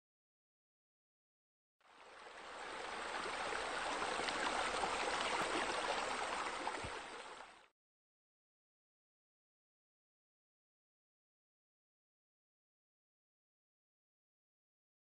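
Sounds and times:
running water rushing: 1.9 - 7.7.

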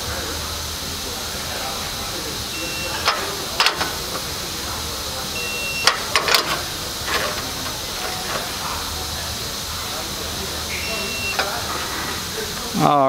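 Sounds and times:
steady hiss of shop noise: 0.0 - 13.0
torque wrench high beep: 2.5 - 3.4, 5.3 - 6.2, 10.6 - 11.5.

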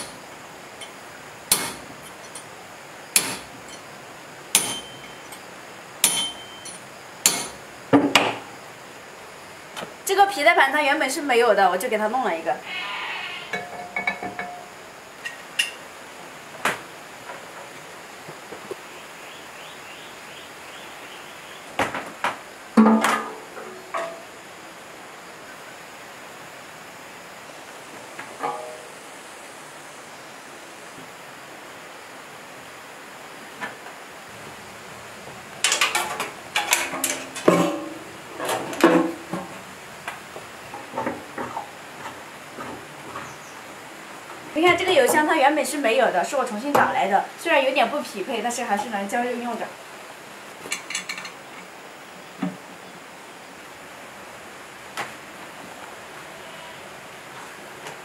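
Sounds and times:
light metal clinks: 0.8 - 2.5, 6.0 - 7.5, 13.5 - 15.8
metal clanks and knocks: 13.5 - 15.8, 22.8 - 24.3, 28.4 - 28.9, 35.6 - 39.5.

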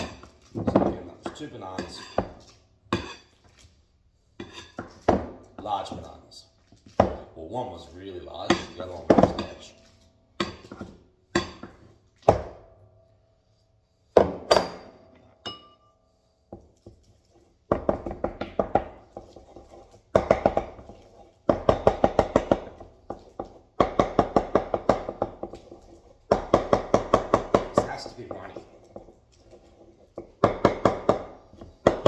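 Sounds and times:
wooden spoon knocking bowl: 20.0 - 25.6, 26.2 - 29.2, 30.1 - 32.0.

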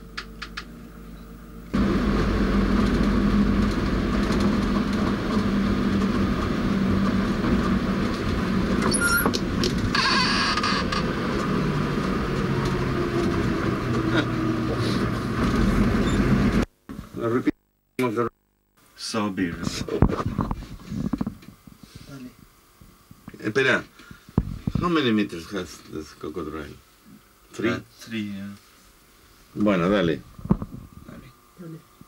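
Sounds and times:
vehicle engine hum from inside: 1.7 - 16.7.

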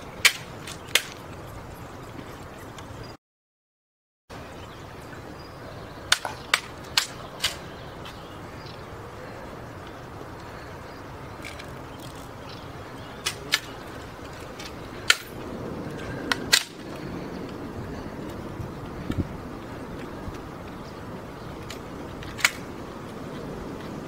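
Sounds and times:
outdoor background: 0.0 - 3.2, 4.3 - 24.0
rifle metallic clicks: 6.1 - 7.6, 16.3 - 16.8, 21.6 - 22.7.

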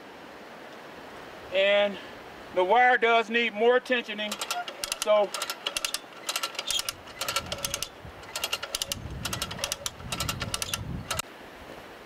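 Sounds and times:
ratchet clicking: 4.3 - 11.2.

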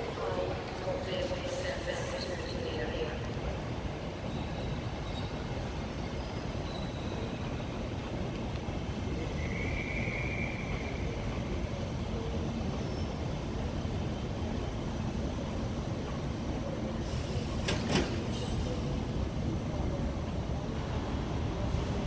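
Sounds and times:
low rumble of trains: 0.0 - 22.0
high train squeal: 4.0 - 8.2, 9.0 - 11.8, 12.6 - 13.7.

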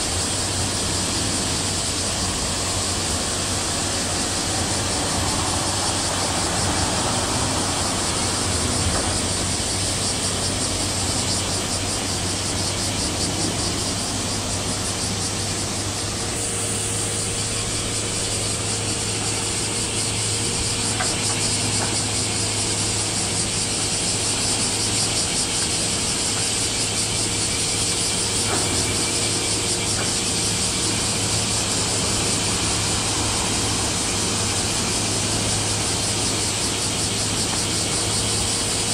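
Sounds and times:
broad hiss: 0.0 - 38.9
low machinery hum: 0.0 - 38.9.

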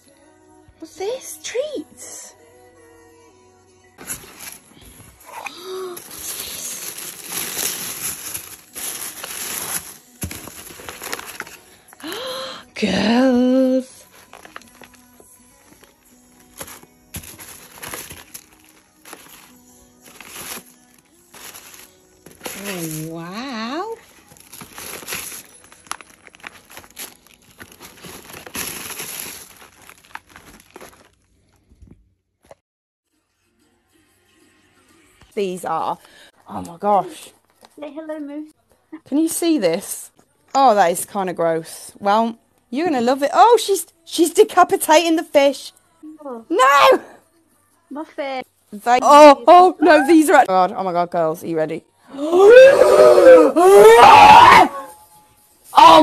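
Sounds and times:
packaging crinkling and rustling: 4.0 - 12.4, 14.0 - 23.1, 23.9 - 31.8.

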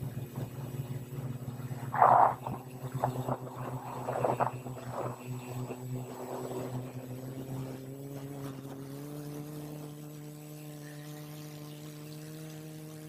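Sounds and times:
drone propellers humming: 0.0 - 13.0
wind on microphone: 1.7 - 7.0.

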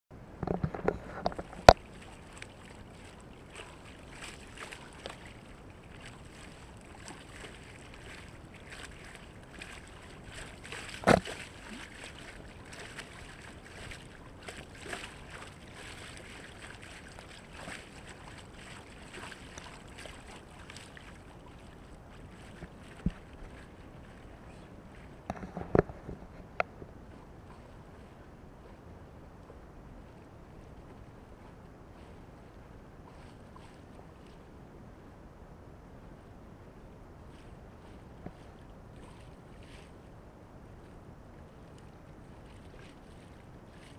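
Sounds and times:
water rushing along a hull: 0.2 - 43.9
water slapping: 0.4 - 28.8, 41.6 - 43.9.

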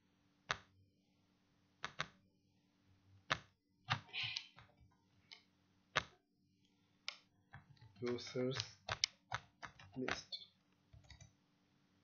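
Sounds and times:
computer mouse clicks: 7.0 - 11.4.

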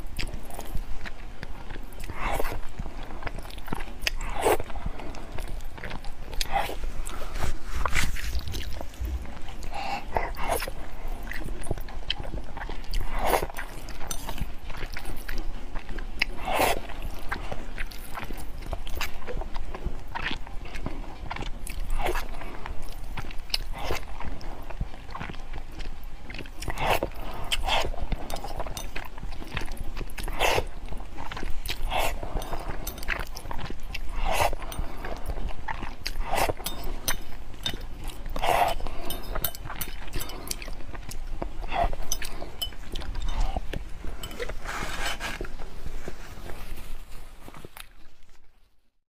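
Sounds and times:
chewing: 0.0 - 48.8
person slurping noodles: 4.2 - 5.0, 16.3 - 17.2, 26.6 - 29.0, 30.1 - 30.8, 31.6 - 37.3, 38.2 - 40.8, 41.6 - 45.6.

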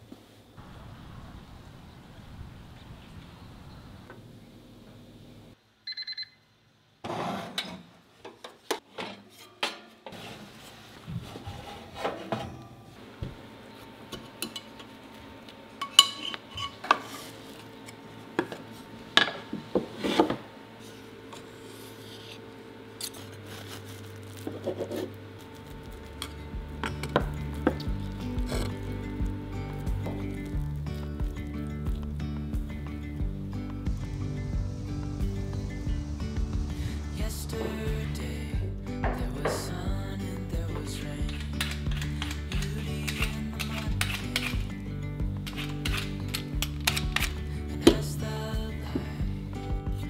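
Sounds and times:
oven timer beeping: 5.9 - 6.4.

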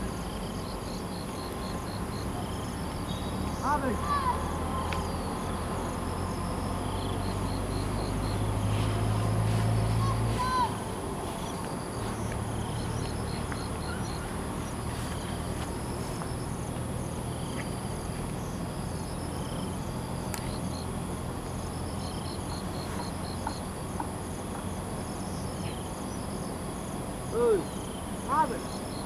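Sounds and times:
insect chirps: 0.0 - 29.0
insects droning: 0.0 - 29.0.

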